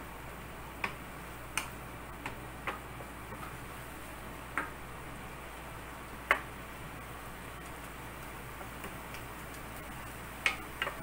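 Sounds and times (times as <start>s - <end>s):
meat frying in a pan: 0.0s - 11.0s
sharp clicks from pan: 10.4s - 11.0s.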